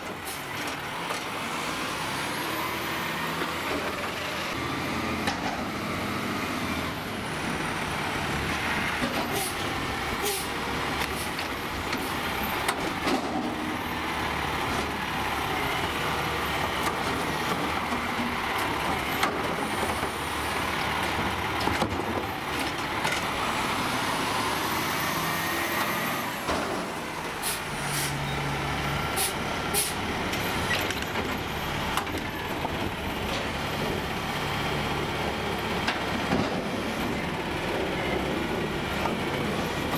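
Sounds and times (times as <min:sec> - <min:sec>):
air brake hissing: 0:27.4 - 0:28.2, 0:29.2 - 0:30.0.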